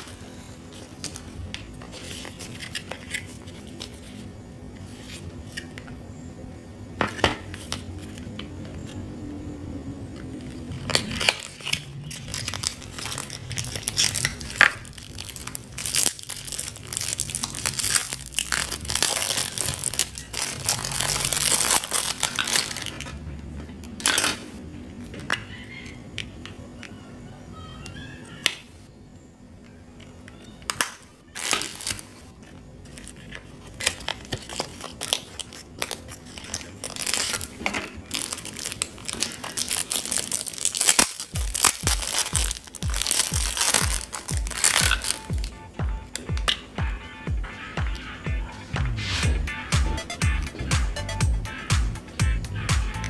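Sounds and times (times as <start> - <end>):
packaging rustling and crinkling: 0.0 - 5.8, 10.2 - 25.3, 30.8 - 46.6.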